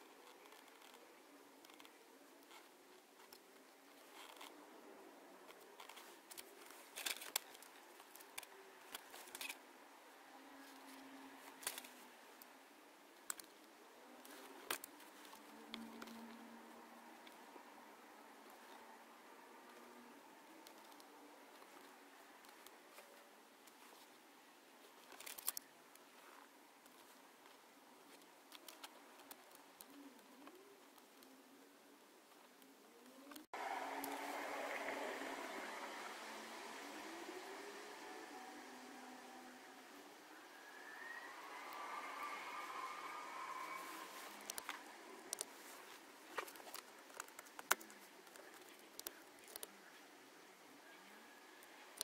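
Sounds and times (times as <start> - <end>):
faint clicks of wires and connector: 46.3 - 49.8.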